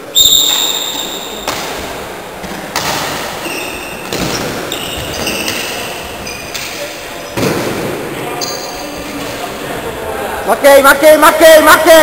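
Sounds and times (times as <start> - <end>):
loud high squeak: 0.2 - 1.4
shoes squeaking on wooden floor: 3.4 - 7.5.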